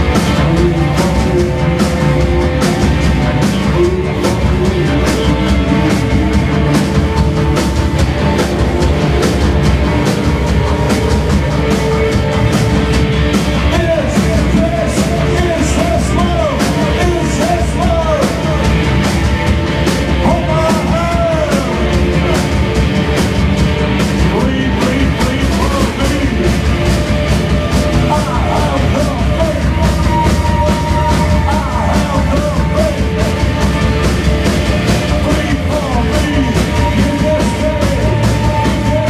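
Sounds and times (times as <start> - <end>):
driving drum beat: 0.0 - 39.0
rock band playing live: 0.0 - 39.0
man singing: 13.6 - 18.8, 20.2 - 22.8, 24.2 - 26.9, 27.9 - 39.0.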